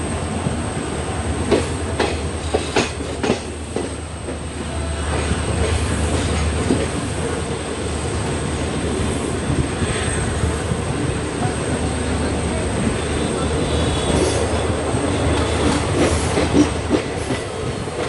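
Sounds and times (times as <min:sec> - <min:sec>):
train rumbling: 0:00.0 - 0:18.0
train wheels clacking over joints: 0:01.4 - 0:04.5, 0:05.1 - 0:07.4, 0:13.6 - 0:18.0.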